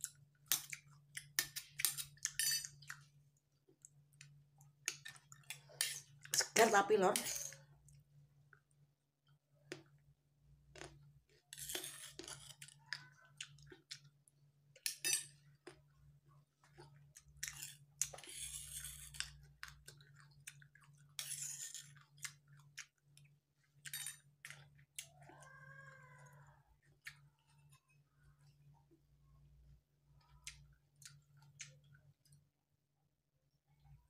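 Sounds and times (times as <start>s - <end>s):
person chewing and crunching: 0.0s - 6.6s, 10.6s - 28.6s, 30.2s - 32.4s.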